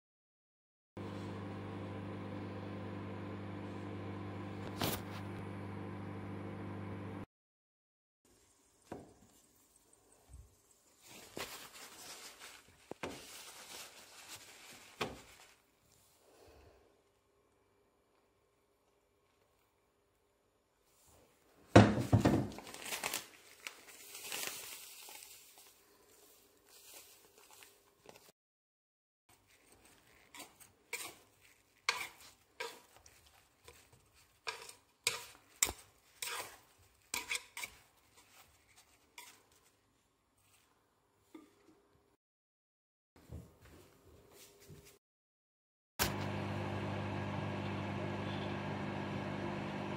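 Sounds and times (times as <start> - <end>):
rustling handling noise: 9.2 - 16.2, 20.8 - 28.3, 29.3 - 41.3
chopsticks scraping wooden bowl: 29.6 - 39.6.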